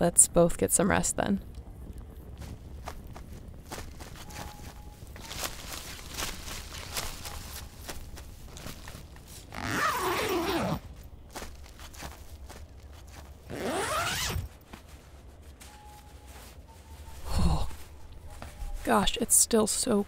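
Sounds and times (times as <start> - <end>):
campfire crackling: 1.0 - 13.5
fabric rustle: 2.4 - 20.0
sleeping bag zipper pulled: 9.4 - 10.9, 13.5 - 14.6.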